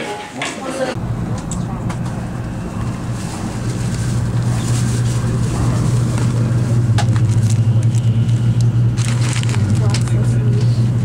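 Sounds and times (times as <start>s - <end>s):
moving train hum and rumble: 0.9s - 11.0s
snack packaging rustling: 3.2s - 10.2s.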